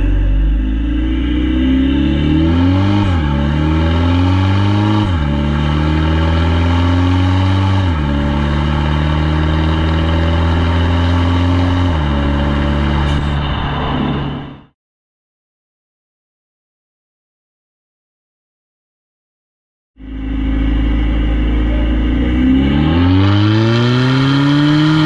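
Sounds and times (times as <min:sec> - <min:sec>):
diesel engine accelerating through gears: 0:00.0 - 0:14.7, 0:20.0 - 0:25.0.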